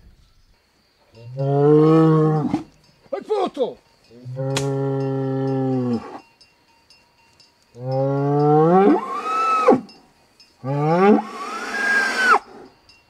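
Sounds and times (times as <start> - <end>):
bull bellowing: 1.2 - 2.8, 4.2 - 6.2, 7.8 - 10.0, 10.6 - 12.8.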